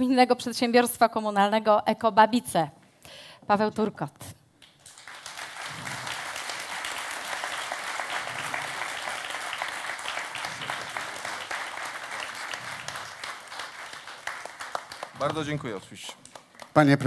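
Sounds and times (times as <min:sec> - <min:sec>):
audience applauding: 0:04.6 - 0:17.0.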